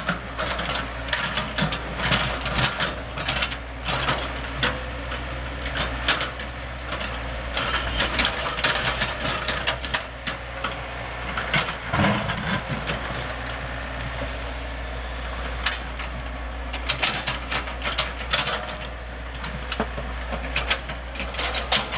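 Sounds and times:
diesel engine running: 0:00.0 - 0:21.9
steel tracks clanking on rock: 0:07.1 - 0:10.1, 0:11.4 - 0:13.3.

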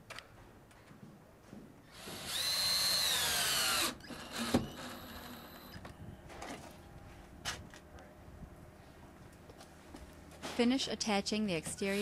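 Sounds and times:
cordless drill driving a screw: 0:01.9 - 0:05.8.

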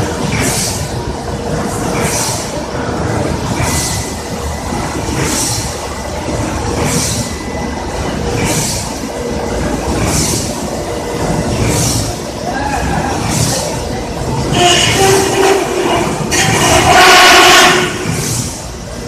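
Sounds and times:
fryer conveyor mechanical rumble: 0:00.0 - 0:19.0
hiss: 0:18.0 - 0:18.6.

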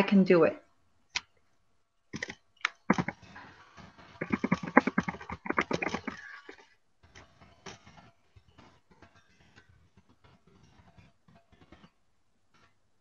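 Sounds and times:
computer keyboard typing: 0:02.2 - 0:03.2, 0:04.2 - 0:06.6.

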